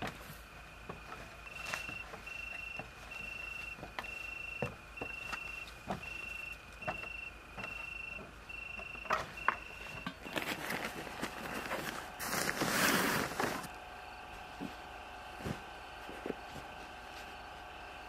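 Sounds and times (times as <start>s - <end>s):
insect chirping trill: 1.4s - 11.6s
rustling: 9.2s - 13.8s.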